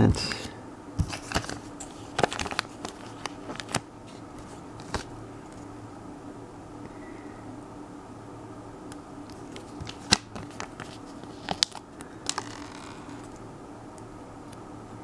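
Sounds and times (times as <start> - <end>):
paper rustling: 1.0 - 5.1, 9.5 - 11.8.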